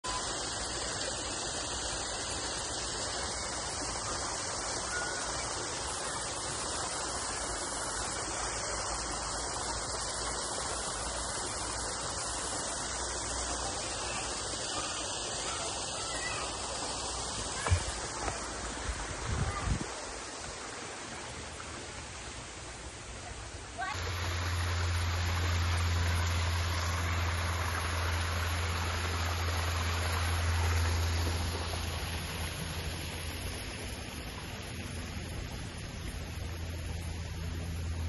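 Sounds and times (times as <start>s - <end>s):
waterfall rushing: 0.0s - 38.0s
thump: 17.6s - 18.4s.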